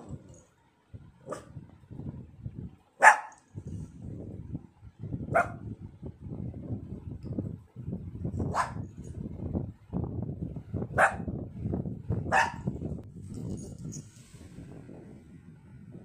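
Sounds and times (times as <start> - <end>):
dog barking sharply: 3.0 - 3.4, 12.3 - 12.7.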